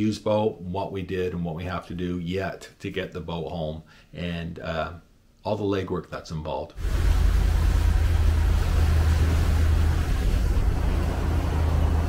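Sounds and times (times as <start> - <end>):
boat engine droning: 6.8 - 12.0
water rushing past hull: 6.8 - 12.0.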